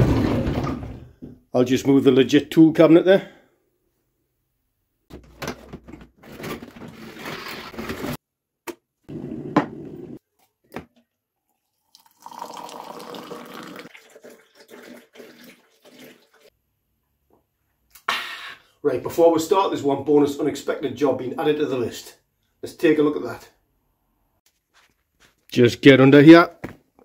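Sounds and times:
kettle pouring into a mug: 11.4s - 16.5s
water running and pouring: 11.4s - 16.5s.

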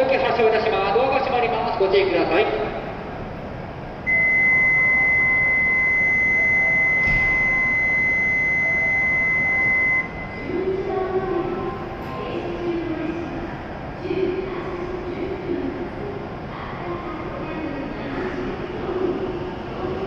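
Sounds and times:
high electronic buzzer tone: 4.1s - 10.3s.

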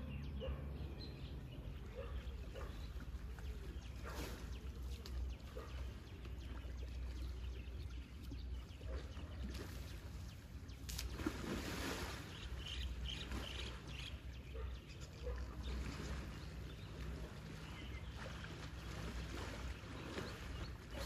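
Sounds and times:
water splashing and sloshing: 0.4s - 21.0s.

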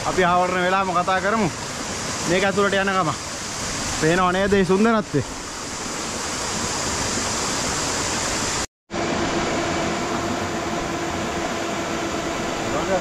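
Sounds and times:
water rushing in rocky stream: 0.1s - 8.7s
drone propellers humming: 9.0s - 13.0s.

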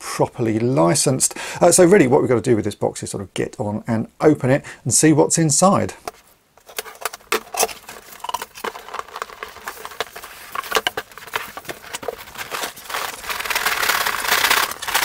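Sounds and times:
cardboard boxes tapping and knocking: 6.1s - 15.0s.

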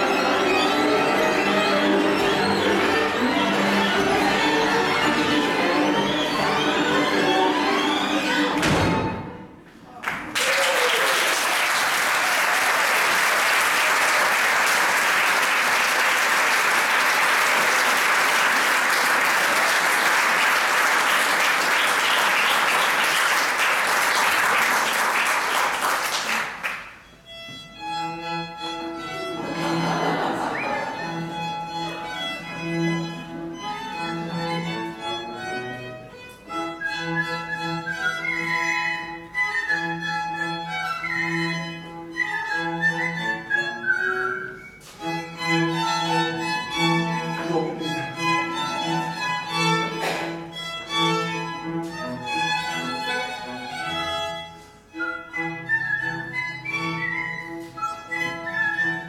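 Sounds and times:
string ensemble sustained notes: 0.0s - 8.6s, 45.0s - 57.3s
audience applause: 10.0s - 27.0s.

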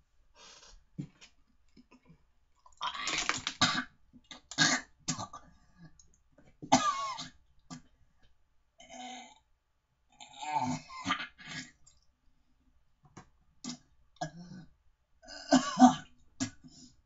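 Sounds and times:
man coughing and gagging: 6.7s - 7.4s, 15.3s - 16.1s.

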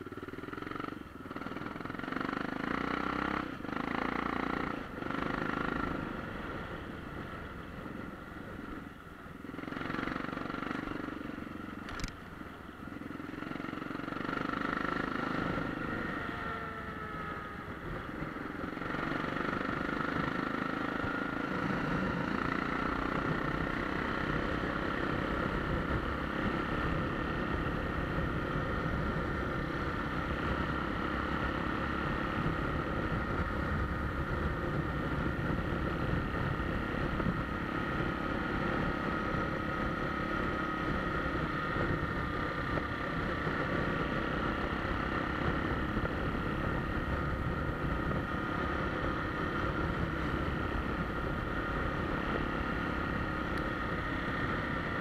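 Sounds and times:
motorcycle engine running: 0.0s - 55.0s
wind rumbling on microphone: 21.1s - 55.0s.

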